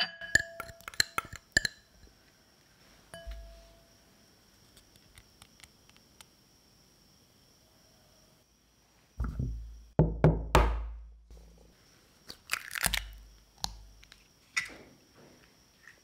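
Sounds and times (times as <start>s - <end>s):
eggshell knocking on hard edge: 9.2s - 11.0s
eggshell crackling apart: 12.3s - 14.2s.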